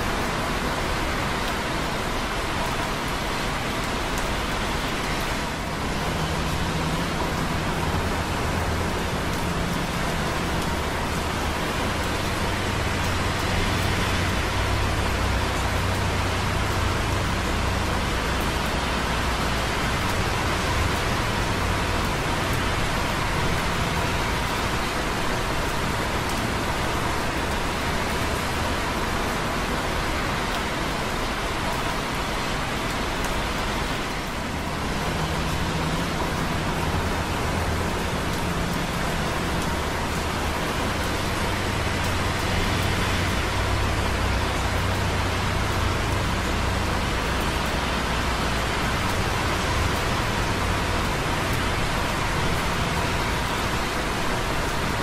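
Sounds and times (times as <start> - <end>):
rain dripping on concrete: 0.0 - 55.0
traffic on wet roads: 0.0 - 55.0.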